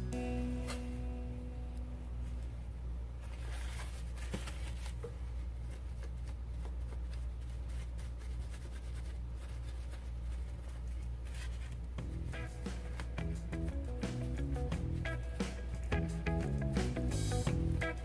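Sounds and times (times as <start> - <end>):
low hum: 0.0 - 4.0, 11.8 - 18.0
paper towel rubbing glass: 5.6 - 15.2.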